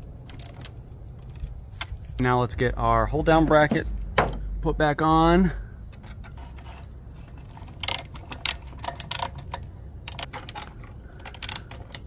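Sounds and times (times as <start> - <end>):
socket ratchet clicking: 7.7 - 12.0.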